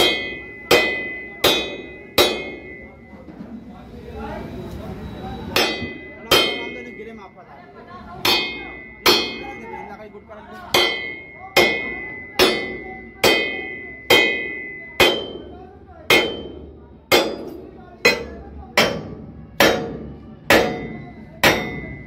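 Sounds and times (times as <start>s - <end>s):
hammer striking steel: 0.0s - 3.1s, 5.5s - 7.3s, 8.2s - 10.0s, 10.7s - 22.0s.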